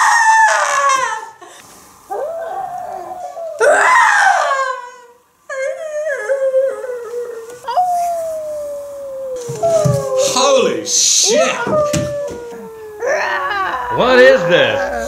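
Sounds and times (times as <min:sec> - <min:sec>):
woman howling: 0:02.1 - 0:15.0
woman whining: 0:11.2 - 0:15.0
woman moaning: 0:11.3 - 0:15.0
woman whimpering: 0:11.4 - 0:14.0.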